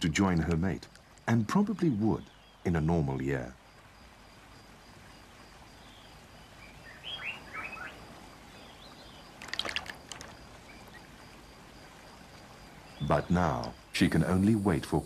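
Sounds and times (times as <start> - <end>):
stream flowing: 0.0 - 14.8
small birds chirping: 0.0 - 15.0
bird splashing in water: 9.2 - 11.9.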